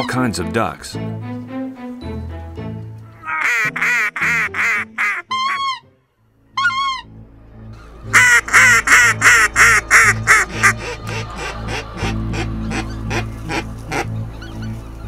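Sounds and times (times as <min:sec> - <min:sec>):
geese honking: 0:03.1 - 0:05.9, 0:06.5 - 0:07.2, 0:07.8 - 0:15.0.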